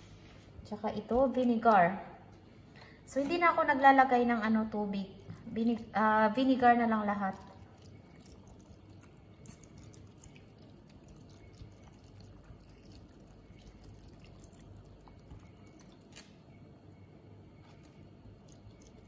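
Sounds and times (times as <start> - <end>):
liquid trickling and dripping: 5.2 - 16.3, 17.7 - 19.0.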